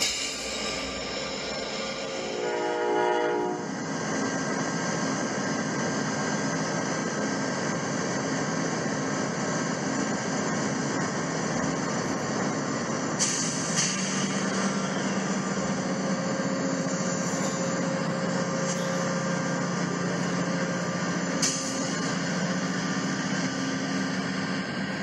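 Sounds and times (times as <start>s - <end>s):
train rumble: 0.0s - 25.0s
train horn chord: 2.1s - 3.7s.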